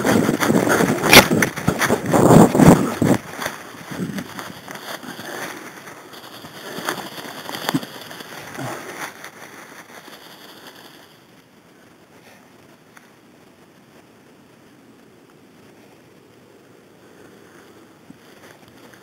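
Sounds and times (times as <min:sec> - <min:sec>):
twigs snapping: 0:00.0 - 0:10.9
dry leaves crackling and rustling: 0:00.0 - 0:14.6, 0:17.0 - 0:19.0.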